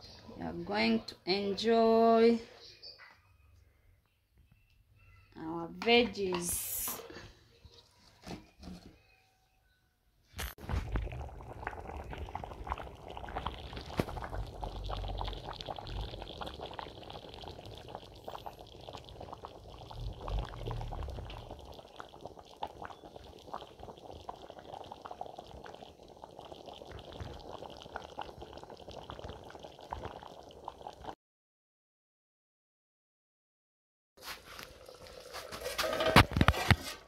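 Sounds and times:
stew bubbling in a pot: 10.6s - 31.2s, 34.2s - 37.0s.

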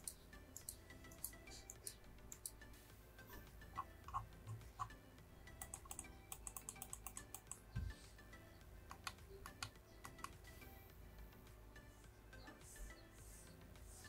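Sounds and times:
mouse buttons clicking: 5.6s - 7.6s, 8.9s - 10.4s.

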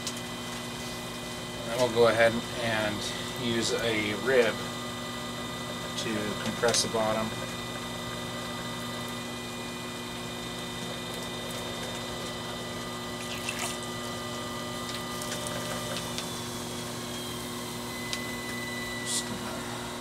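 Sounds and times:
potter's wheel humming and whining: 0.0s - 20.0s.

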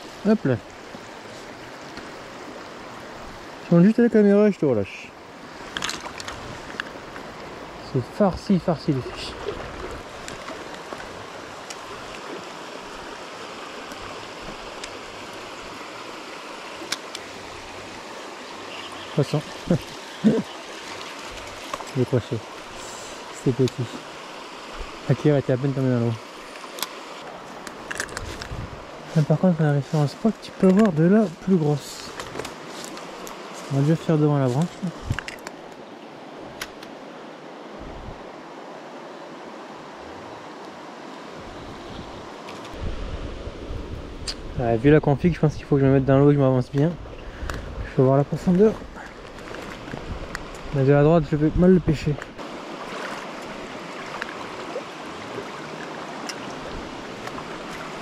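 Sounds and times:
river flowing over stones: 0.0s - 58.0s
fishing rod clicks: 16.8s - 17.3s, 26.6s - 27.0s, 35.0s - 35.8s, 36.6s - 37.0s
wind on microphone: 28.0s - 29.1s, 34.9s - 35.4s, 37.7s - 38.3s, 41.3s - 46.2s, 46.9s - 58.0s.

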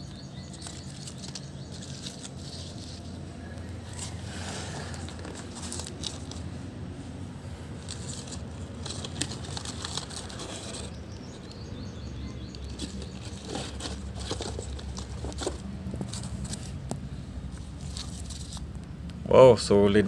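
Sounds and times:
steady low hum: 0.0s - 20.0s
paper rockets rustling and clicking: 0.5s - 3.6s, 4.8s - 6.4s, 7.8s - 11.3s, 12.5s - 17.0s.

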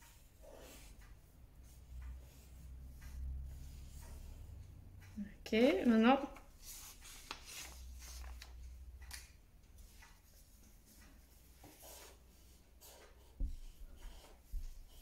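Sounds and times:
marker scratching on paper: 0.1s - 0.9s, 11.6s - 15.0s.

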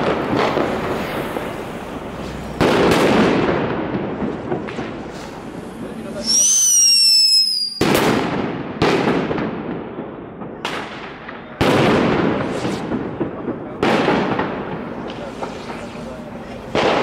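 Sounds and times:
loud firework bangs with echo: 0.0s - 17.0s
firework falling whistle: 5.0s - 8.0s.

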